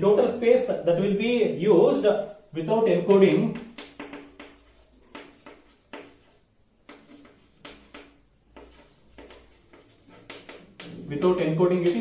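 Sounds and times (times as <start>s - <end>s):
chalk scratching on chalkboard: 2.9s - 12.0s.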